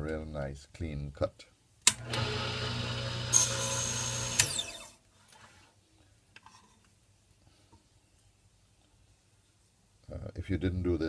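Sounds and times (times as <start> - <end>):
saw winding down whine: 2.1 - 4.9
table saw cutting wood: 2.1 - 4.9.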